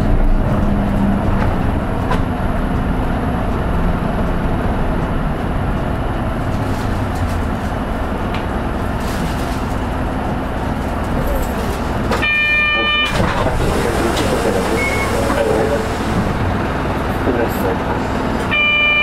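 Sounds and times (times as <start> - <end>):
bus diesel engine droning: 0.0 - 19.0
road rumble: 0.0 - 19.0.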